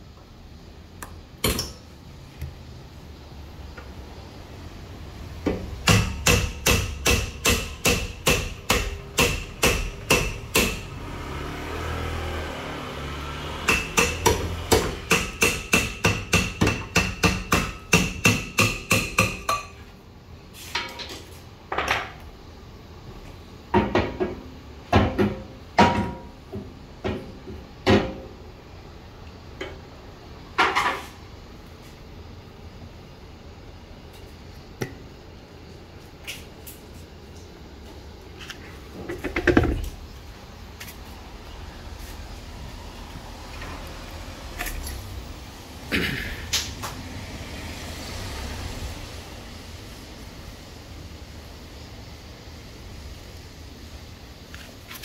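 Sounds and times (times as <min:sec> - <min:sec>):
hammer beating on metal: 0:05.8 - 0:10.9, 0:13.7 - 0:19.8.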